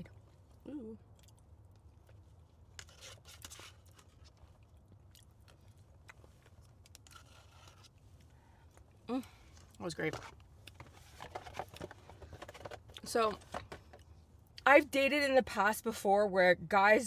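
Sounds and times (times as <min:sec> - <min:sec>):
person chewing food: 0:00.0 - 0:09.8
low steady hum: 0:00.0 - 0:17.0
person humming mm: 0:00.6 - 0:01.0.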